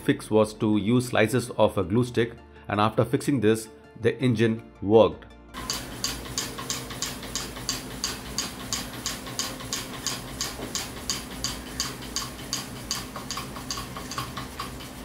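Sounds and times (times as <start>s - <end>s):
small engine linkage clicking: 5.6s - 15.0s.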